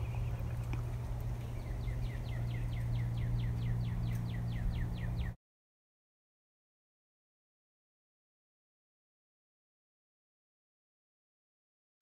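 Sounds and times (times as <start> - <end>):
bird chirping rapidly: 0.0 - 5.4
steady low hum: 0.0 - 5.4.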